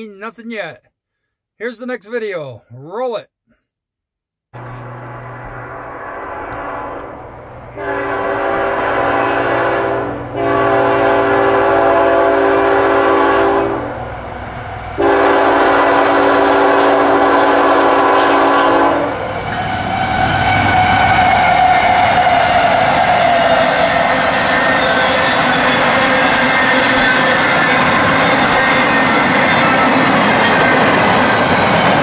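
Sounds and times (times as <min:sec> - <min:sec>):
train engine and wheel noise: 0:04.6 - 0:32.0
locomotive air horn blasts: 0:06.2 - 0:14.0, 0:15.0 - 0:23.8.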